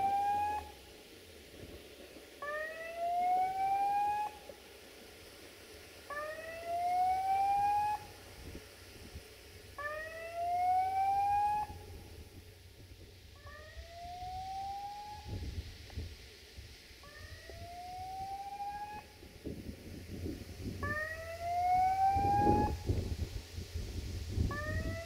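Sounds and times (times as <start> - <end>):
siren-like wail rising in pitch: 0.0 - 0.8, 2.4 - 4.5, 6.1 - 8.1, 9.8 - 12.1, 13.4 - 15.5, 17.0 - 19.1, 20.8 - 22.9, 24.5 - 25.0.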